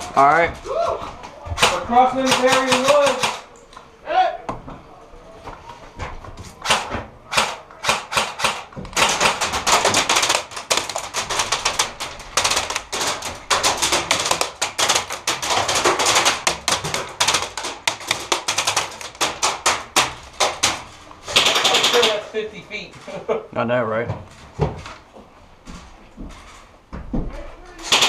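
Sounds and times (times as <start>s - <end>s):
airsoft fire clatter: 1.6s - 3.5s, 6.6s - 22.2s.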